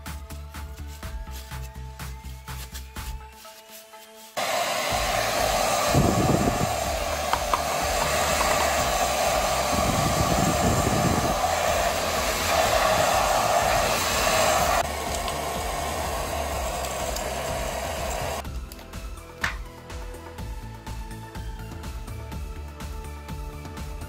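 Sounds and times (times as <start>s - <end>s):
hair dryer blowing: 4.4s - 18.4s.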